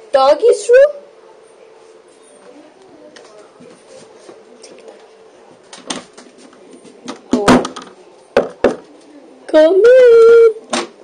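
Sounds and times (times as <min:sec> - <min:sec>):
knocking on a door: 0:08.4 - 0:08.8.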